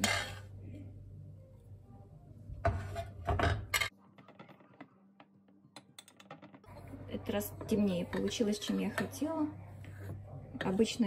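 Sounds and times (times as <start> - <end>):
metal spoon scraping a plate: 0.0 - 0.5.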